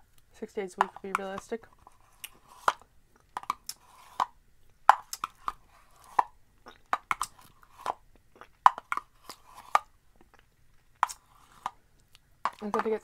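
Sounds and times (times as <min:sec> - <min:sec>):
metal spoon scraping plastic tub: 0:03.4 - 0:04.4, 0:12.5 - 0:13.0.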